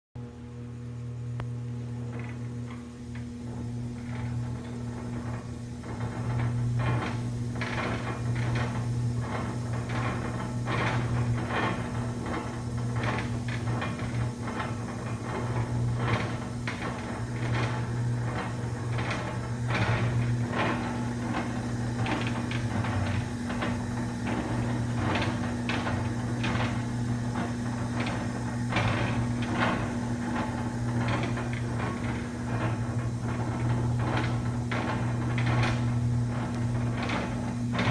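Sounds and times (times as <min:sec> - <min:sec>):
electric motor hum: 0:00.2 - 0:37.9
machine drive clicks and clatter: 0:01.3 - 0:37.9.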